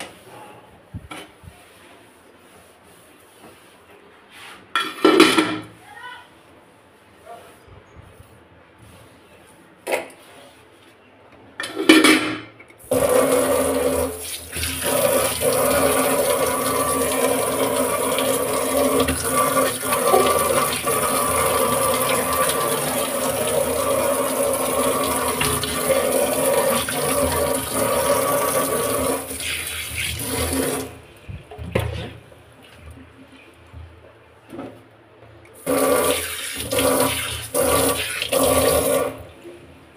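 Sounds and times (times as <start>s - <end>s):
tap water running into sink: 12.9s - 31.0s, 35.6s - 39.2s.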